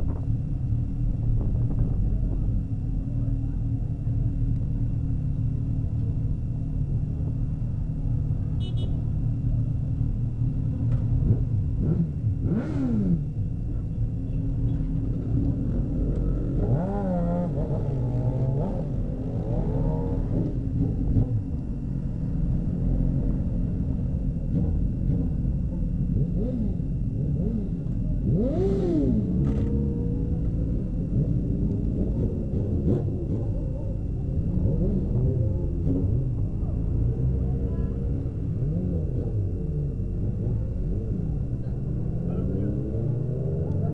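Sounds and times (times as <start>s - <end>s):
motorcycles idling and revving: 0.0s - 43.9s.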